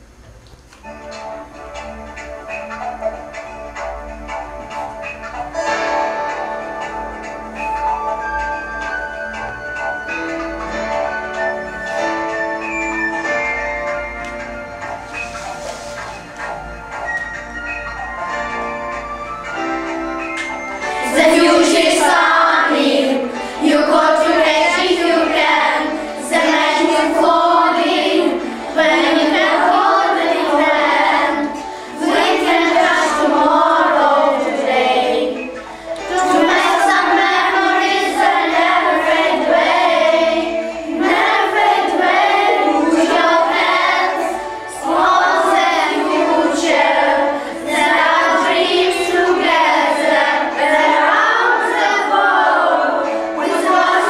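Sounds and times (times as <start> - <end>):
children singing in unison: 20.8 - 54.0.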